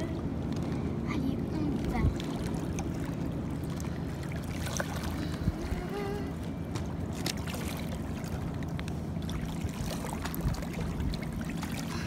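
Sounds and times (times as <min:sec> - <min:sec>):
wind rumble on microphone: 0:00.0 - 0:12.0
waves lapping on pebbles: 0:06.4 - 0:12.0.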